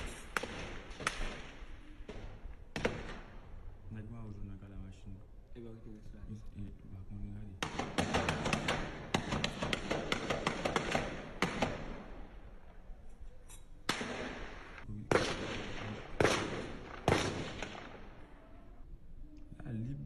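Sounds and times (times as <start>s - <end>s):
gunshots echoing: 0.0s - 3.7s, 7.6s - 12.7s, 13.8s - 18.4s.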